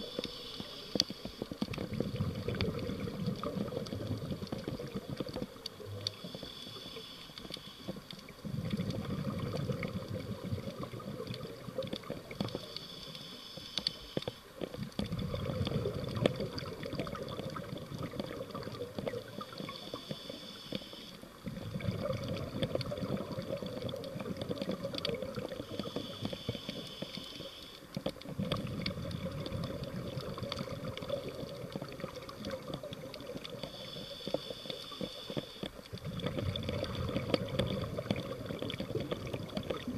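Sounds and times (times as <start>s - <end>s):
regulator hissing inhale: 0.0s - 3.1s, 5.9s - 8.2s, 12.3s - 14.6s, 19.4s - 21.4s, 25.4s - 28.0s, 33.4s - 35.9s
small clicks and crackles: 0.0s - 39.9s
bubbling exhaust: 1.7s - 6.0s, 8.4s - 12.4s, 14.8s - 19.6s, 21.4s - 25.8s, 28.3s - 33.6s, 35.9s - 39.9s.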